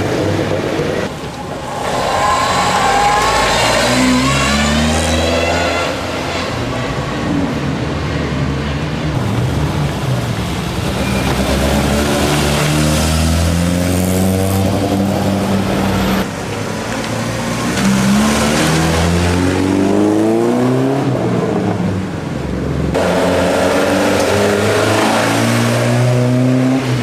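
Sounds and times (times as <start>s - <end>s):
rally car engines revving past: 1.6s - 6.7s, 10.8s - 16.3s, 22.9s - 27.0s.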